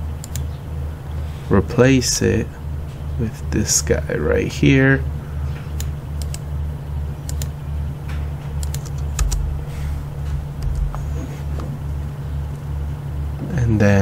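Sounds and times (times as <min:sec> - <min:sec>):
keyboard keystrokes: 0:00.2 - 0:00.5, 0:05.8 - 0:06.4, 0:07.3 - 0:07.5, 0:08.6 - 0:09.6, 0:10.5 - 0:11.1
pulsing low hum: 0:05.1 - 0:13.5
mouse clicks: 0:07.3 - 0:07.5.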